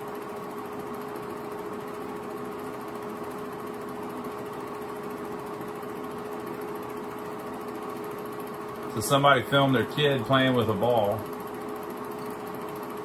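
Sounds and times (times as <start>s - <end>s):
film projector whirring: 0.0s - 13.0s
steady hum: 0.0s - 13.0s.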